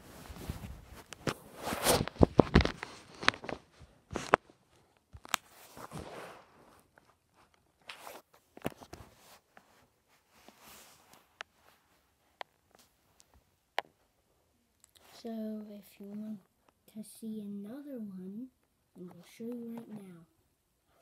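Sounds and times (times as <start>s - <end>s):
handling noise on recorder: 0.0s - 14.0s.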